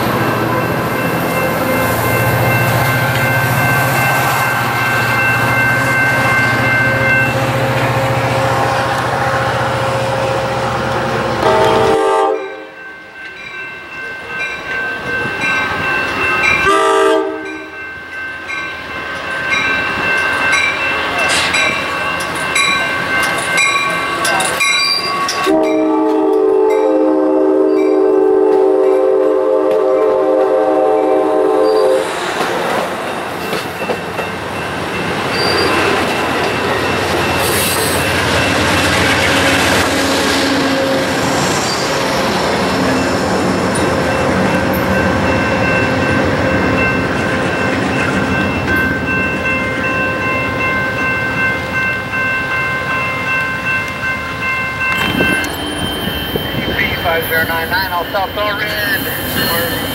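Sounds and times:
train cars rumbling and clattering: 0.0 - 59.9
train horn chord: 7.3 - 12.8, 16.6 - 17.8, 25.5 - 32.1, 39.8 - 41.2.

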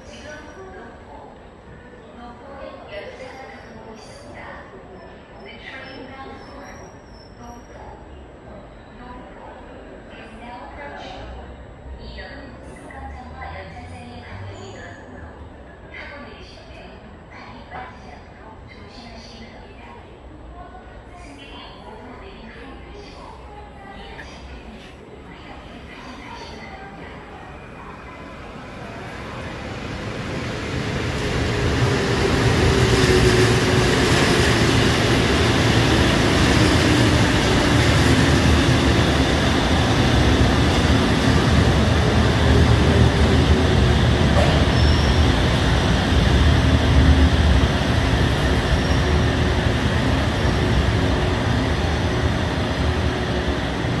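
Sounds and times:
train wheels on rail: 28.5 - 54.0.

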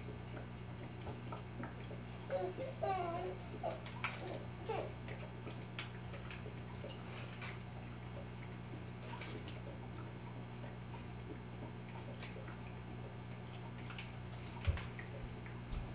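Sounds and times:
aquarium filter humming: 0.0 - 15.9
water trickling and dripping: 0.0 - 15.9.

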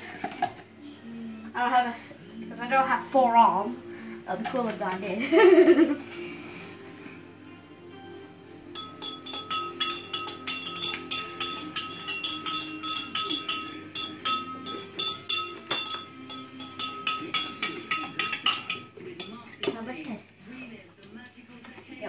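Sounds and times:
metal spoon clinking in cup: 8.8 - 19.8.

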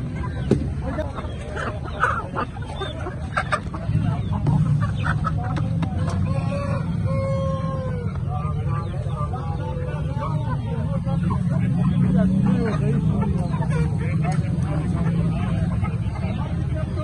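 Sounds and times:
chickens clucking and calling: 0.0 - 17.0
rooster crowing: 6.2 - 8.0.

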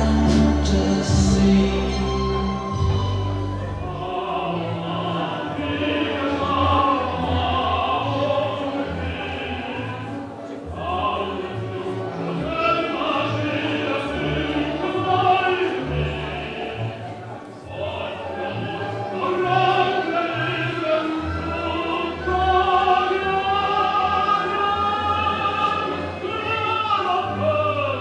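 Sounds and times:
bass line: 0.0 - 4.7
person singing: 0.0 - 16.8, 17.7 - 28.0.

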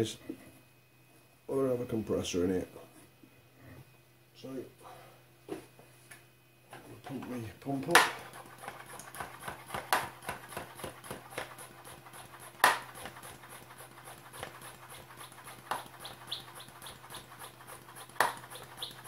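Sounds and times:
hand air pump strokes: 8.2 - 19.0
bird chirping: 15.8 - 17.2, 18.4 - 19.0.

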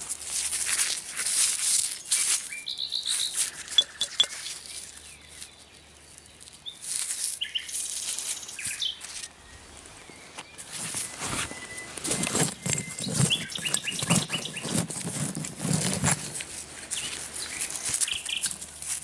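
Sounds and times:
hands rustling in dry soil: 0.0 - 19.0
songbirds chirping: 2.0 - 15.0, 16.8 - 18.9.

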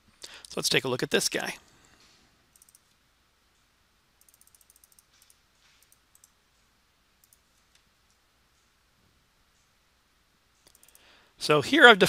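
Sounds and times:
mouse scroll wheel notches: 2.6 - 3.0, 4.2 - 6.4, 10.6 - 11.1.

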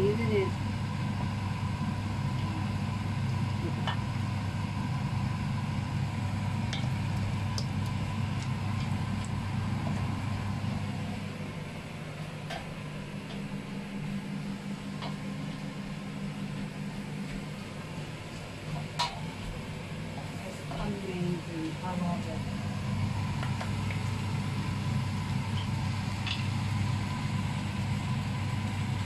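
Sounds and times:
low mechanical hum: 0.0 - 29.0.

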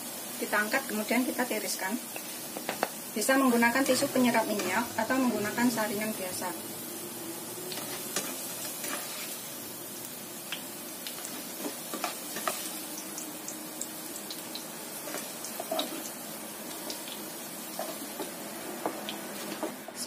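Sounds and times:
potatoes sizzling in oil: 0.0 - 20.0
spatula scraping pan: 2.2 - 6.1, 7.7 - 9.4, 15.0 - 16.1.

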